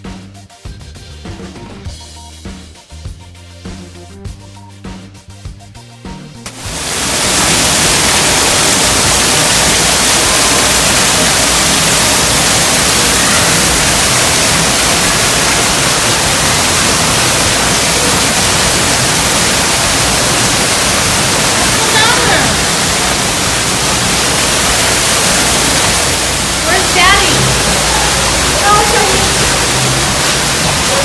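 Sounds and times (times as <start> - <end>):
indoor waterfall pouring into pool: 6.5 - 31.0.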